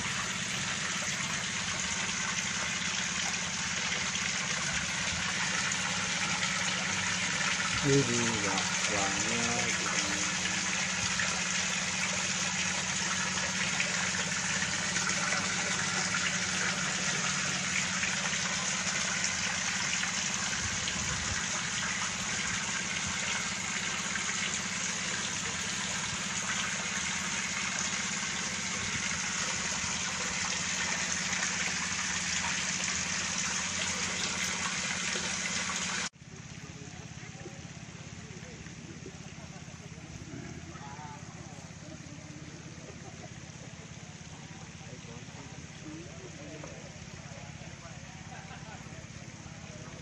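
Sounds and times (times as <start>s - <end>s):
water pouring into shallow water: 0.0s - 50.0s.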